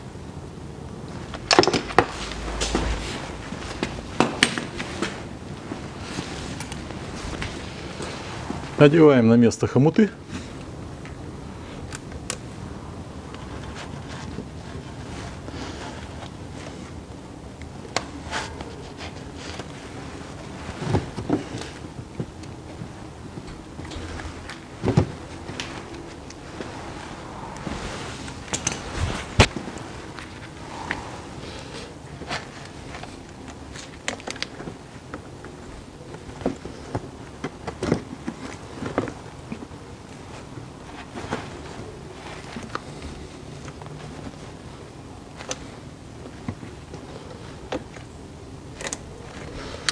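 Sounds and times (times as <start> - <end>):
faint steady background noise: 0.0 - 49.9
steady background noise: 0.0 - 49.9.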